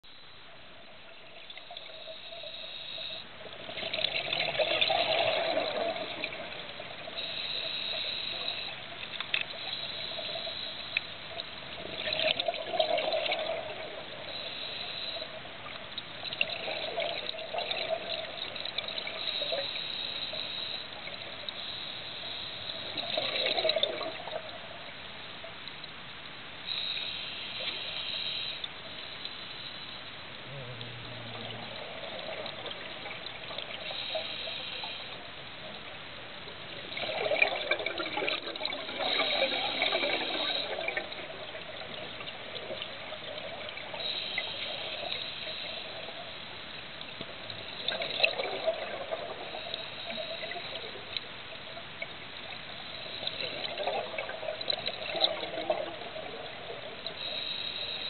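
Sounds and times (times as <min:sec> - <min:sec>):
steady underwater hiss: 0:00.0 - 0:58.0
exhaled bubbles bursting: 0:03.5 - 0:07.2, 0:11.8 - 0:14.2, 0:16.3 - 0:19.2, 0:22.9 - 0:24.4, 0:30.4 - 0:34.2, 0:36.9 - 0:45.1, 0:47.8 - 0:50.9, 0:53.2 - 0:57.2.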